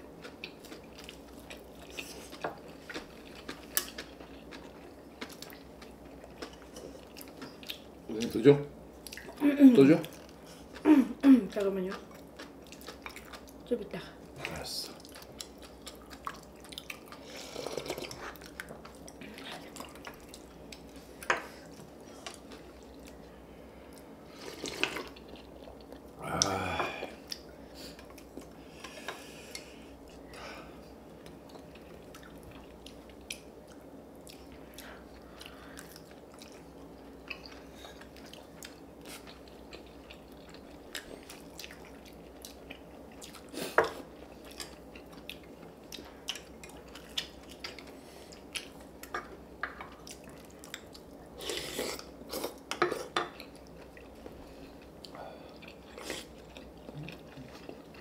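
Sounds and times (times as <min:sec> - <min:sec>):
chewing: 0:00.2 - 0:08.4, 0:09.0 - 0:09.4, 0:11.6 - 0:13.6, 0:14.4 - 0:23.3, 0:23.9 - 0:30.2, 0:31.2 - 0:58.0.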